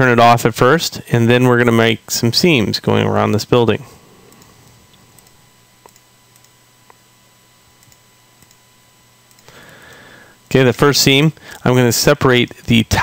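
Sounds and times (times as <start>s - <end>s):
low steady hum: 0.0s - 13.0s
computer mouse clicks: 4.3s - 7.0s, 7.8s - 8.6s, 9.3s - 9.6s.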